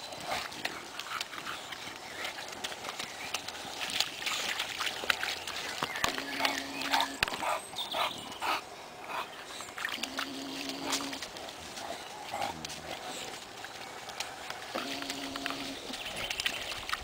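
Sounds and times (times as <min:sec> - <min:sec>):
grass rustling: 0:09.5 - 0:17.0.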